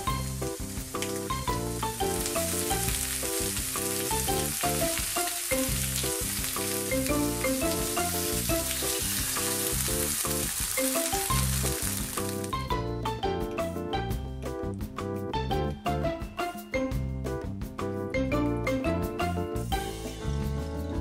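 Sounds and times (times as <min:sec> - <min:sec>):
tofu sizzling in a frying pan: 0:00.0 - 0:12.6
background music: 0:00.0 - 0:21.0.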